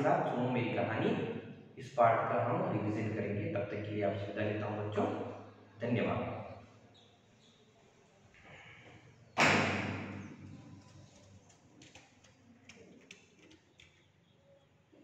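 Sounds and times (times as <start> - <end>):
loud bang ringing in a room: 9.4 - 10.5
faint clicks and taps: 10.5 - 14.1.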